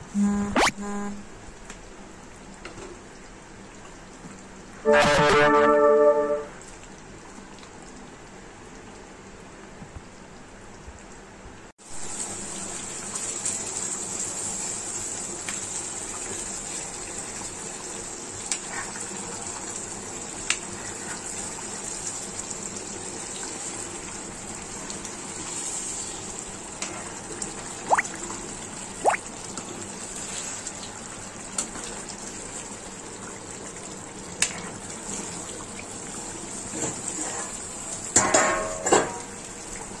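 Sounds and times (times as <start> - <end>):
curry bubbling and sizzling: 11.9 - 40.0.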